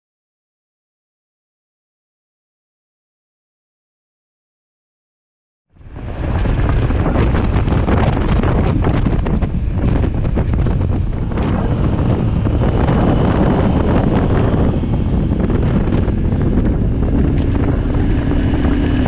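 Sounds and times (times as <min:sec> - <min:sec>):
wind buffeting microphone: 0:05.8 - 0:19.0.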